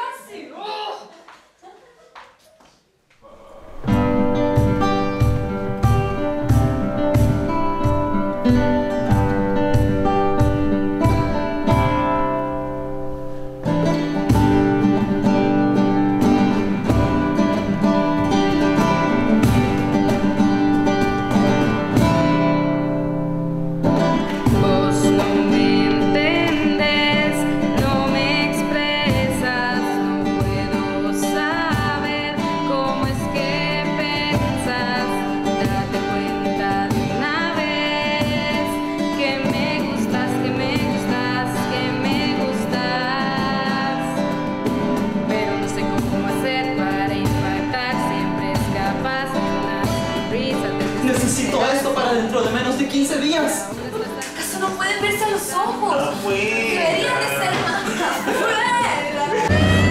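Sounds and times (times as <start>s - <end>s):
person singing: 3.2s - 4.7s, 24.1s - 44.2s, 59.1s - 59.9s
acoustic guitar strumming: 3.3s - 59.9s.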